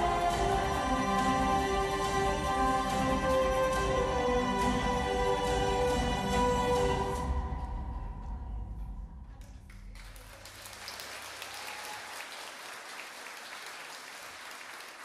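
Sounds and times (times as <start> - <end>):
music: 0.0 - 10.3
audience applause: 10.0 - 15.0.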